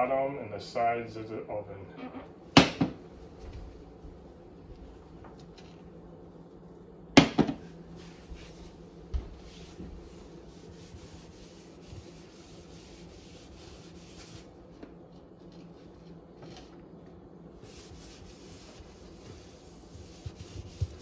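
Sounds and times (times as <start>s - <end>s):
rag rubbing oven wall: 7.2s - 16.7s, 17.5s - 21.0s.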